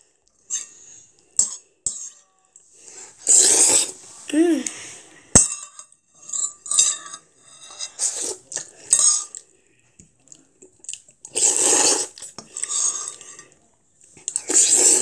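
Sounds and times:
metal spoon scraping ceramic bowl: 3.2s - 4.0s, 5.4s - 9.4s, 11.4s - 13.5s, 14.3s - 15.0s.

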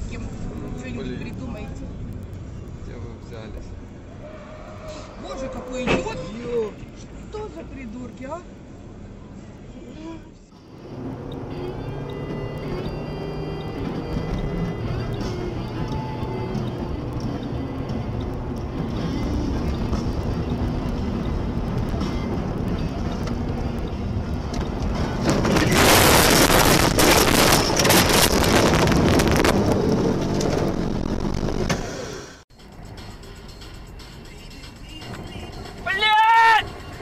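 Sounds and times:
car driving on snowy road: 0.0s - 32.4s
music with steady beat: 32.5s - 35.8s.

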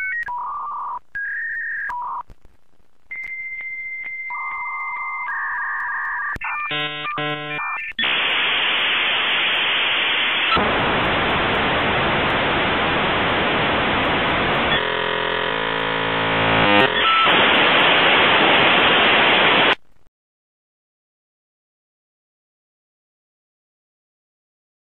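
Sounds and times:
modem static hiss: 0.0s - 20.1s
modem steady tones: 3.0s - 19.8s.

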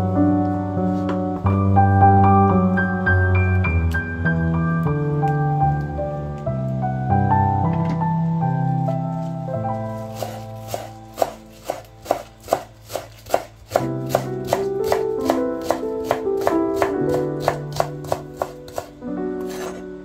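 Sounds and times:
background music: 0.0s - 20.0s
knife chopping on wooden board: 10.1s - 19.8s.

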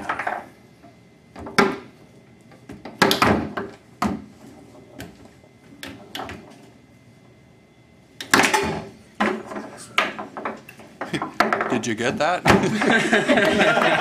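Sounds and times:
foosball ball clacking: 0.0s - 0.5s, 1.4s - 1.9s, 2.7s - 4.3s, 8.2s - 11.8s.

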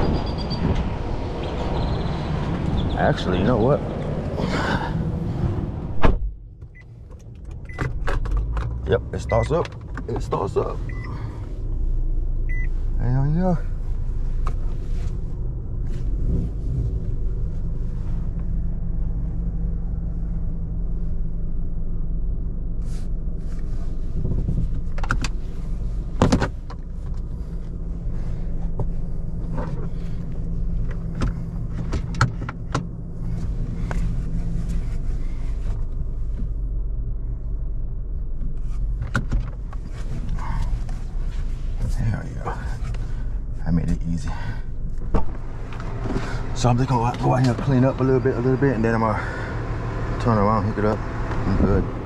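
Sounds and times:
vehicle engine running: 0.0s - 52.0s.

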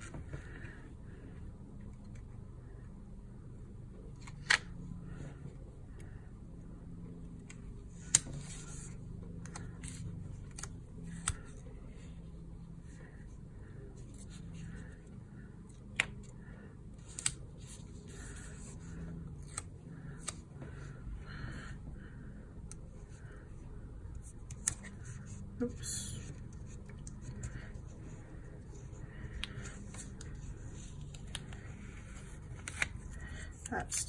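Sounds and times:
stickers clicking and snapping: 31.0s - 34.0s.

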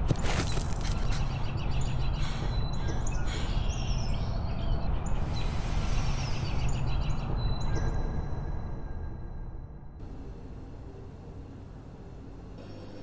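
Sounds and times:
small birds chirping: 0.2s - 8.2s
low outdoor rumble: 8.7s - 13.0s.

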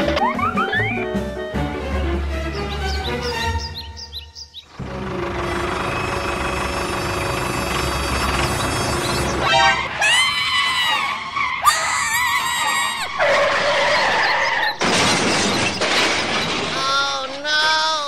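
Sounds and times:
tractor engine running: 0.0s - 10.0s.

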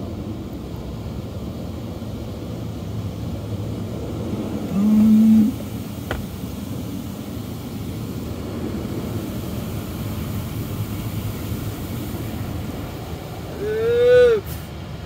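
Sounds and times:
car wash water spraying: 0.0s - 15.0s
voice-like call rising in pitch: 4.7s - 5.6s.

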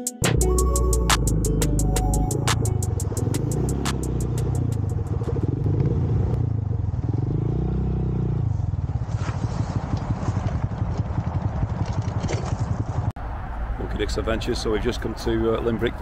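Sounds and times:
small motorcycle engine: 3.0s - 13.0s.

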